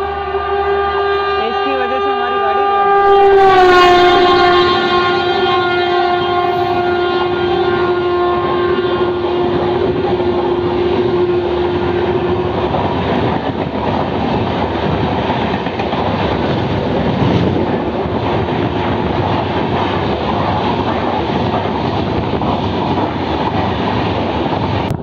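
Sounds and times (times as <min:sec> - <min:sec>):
train rushing past: 0:00.0 - 0:25.0
wheels clattering on rails: 0:12.5 - 0:25.0.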